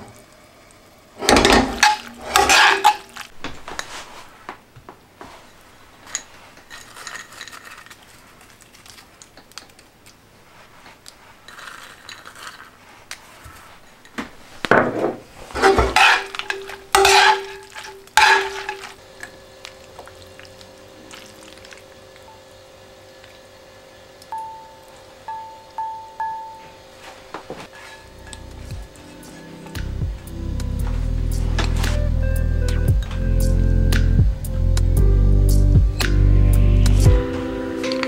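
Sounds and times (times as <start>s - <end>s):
tongs clanking against pan: 1.4s - 3.2s, 15.6s - 19.0s
tongs scraping and sloshing spaghetti: 1.8s - 4.1s, 6.1s - 14.1s, 15.6s - 19.0s, 19.6s - 22.0s
quiet music: 24.3s - 38.0s.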